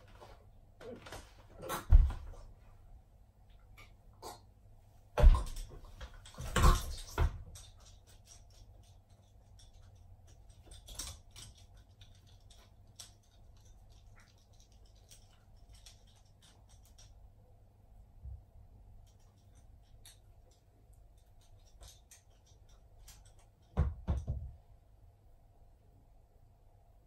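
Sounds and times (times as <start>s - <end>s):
dog claws clicking on floor: 5.4s - 17.3s, 19.0s - 24.4s.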